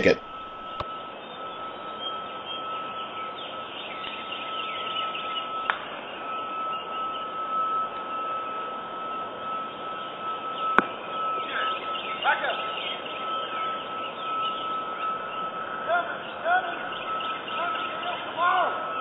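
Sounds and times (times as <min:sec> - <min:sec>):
steady high tone: 0:00.0 - 0:03.2.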